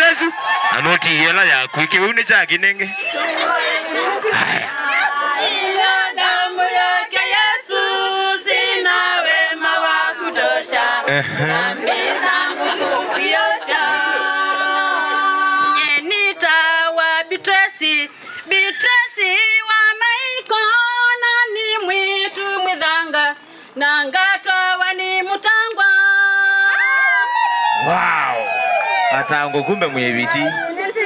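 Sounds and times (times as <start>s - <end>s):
women singing a hymn: 2.9s - 27.4s, 30.3s - 31.0s.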